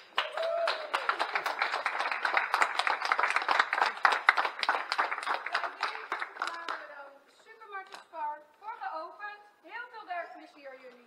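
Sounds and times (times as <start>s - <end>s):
people clapping: 0.0s - 7.0s.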